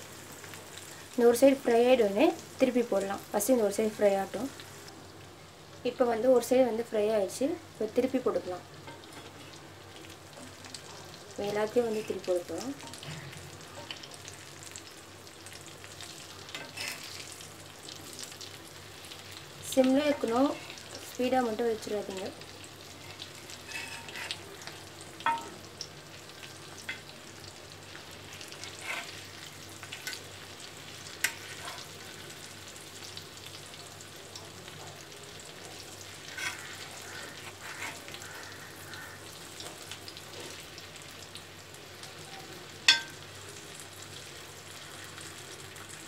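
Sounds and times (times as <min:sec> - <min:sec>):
eggs sizzling in oil: 0:00.0 - 0:46.0
metal spatula taps and scrapes: 0:25.2 - 0:25.6, 0:42.9 - 0:43.2.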